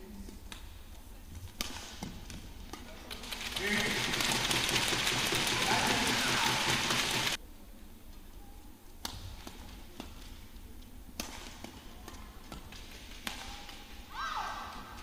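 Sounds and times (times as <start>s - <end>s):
crowd applauding and cheering: 3.4s - 7.4s
racket striking shuttlecock: 12.5s - 13.8s.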